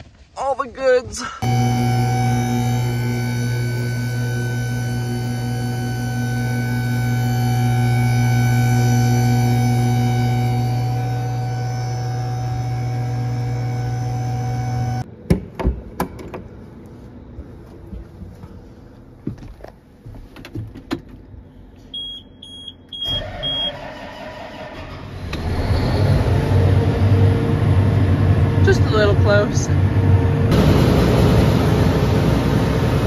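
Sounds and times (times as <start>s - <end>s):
steady hum: 1.4s - 15.1s, 27.1s - 33.0s
tractor engine starting and running: 1.4s - 15.1s, 20.3s - 33.0s
high warning beeps: 22.0s - 23.8s.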